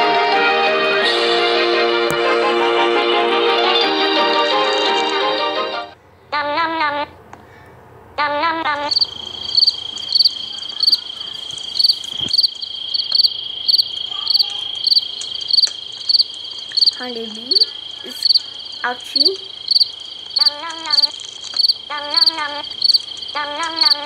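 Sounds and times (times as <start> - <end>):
crickets chirping: 8.7 - 24.0
high-pitched insect drone: 8.9 - 24.0.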